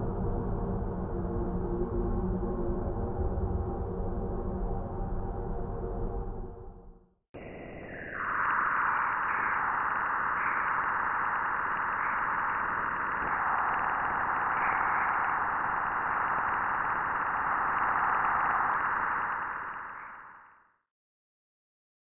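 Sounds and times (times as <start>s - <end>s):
steady hiss with swells: 7.4s - 20.4s.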